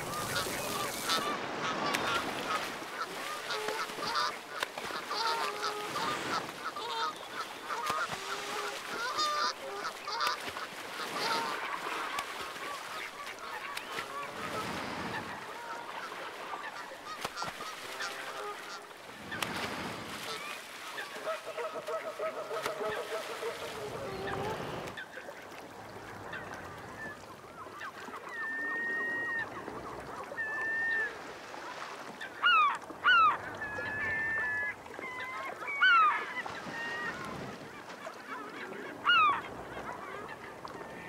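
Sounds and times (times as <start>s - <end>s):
geese honking: 0.0s - 10.4s, 11.0s - 11.7s, 21.0s - 24.9s
water splashing: 0.0s - 41.0s.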